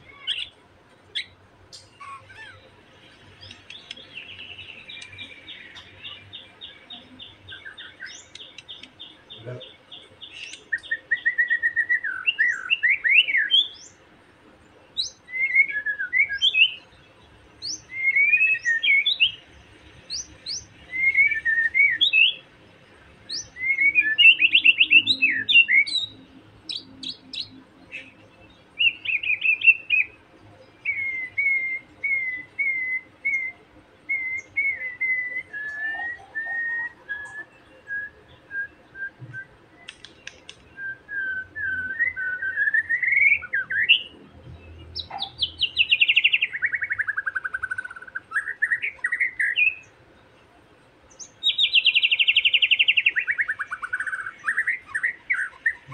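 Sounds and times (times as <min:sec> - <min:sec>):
bird repeated single notes: 0:00.1 - 0:14.0, 0:39.1 - 0:40.8
bird whistled song phrases: 0:03.4 - 0:14.0, 0:15.0 - 0:16.8, 0:17.6 - 0:19.4, 0:20.1 - 0:22.4, 0:23.3 - 0:28.2, 0:28.8 - 0:30.2, 0:30.8 - 0:44.2, 0:45.0 - 0:49.9, 0:51.2 - 0:55.9.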